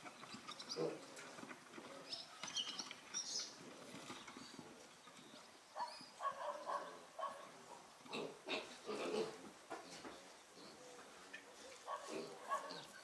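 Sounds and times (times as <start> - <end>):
pigs calling: 8.0 - 9.4, 11.4 - 13.0.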